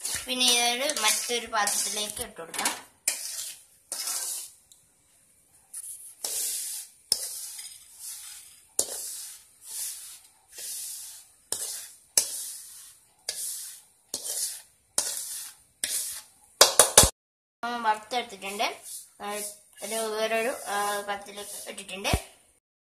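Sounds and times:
grain swishing out of a wok: 0:00.0 - 0:02.2, 0:03.0 - 0:04.6, 0:05.8 - 0:16.4, 0:18.4 - 0:22.3.

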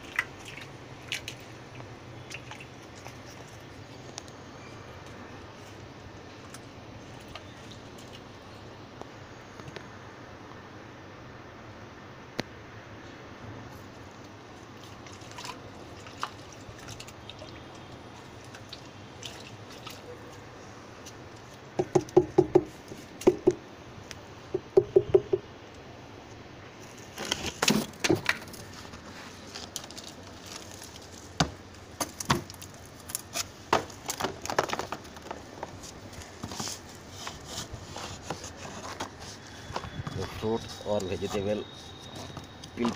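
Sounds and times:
stick scraping through compost: 0:35.3 - 0:42.9.

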